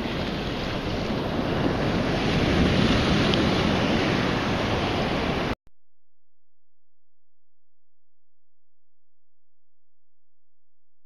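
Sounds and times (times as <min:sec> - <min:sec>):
choppy sea waves: 0:00.0 - 0:05.6
wind on microphone: 0:00.0 - 0:05.6.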